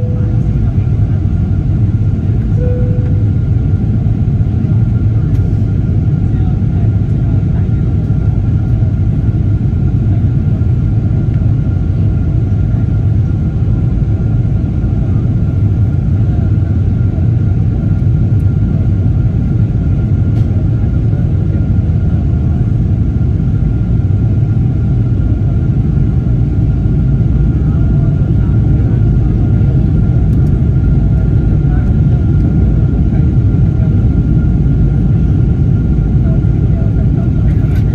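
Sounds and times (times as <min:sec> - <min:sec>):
thin steady whine: 0:00.0 - 0:07.7
airplane cabin engine rumble: 0:00.0 - 0:37.9.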